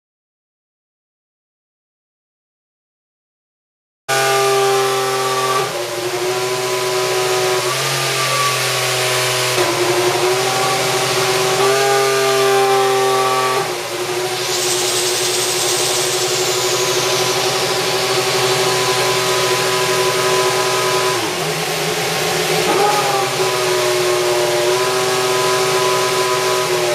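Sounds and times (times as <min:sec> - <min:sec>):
racing car engine idling: 0:21.3 - 0:23.6.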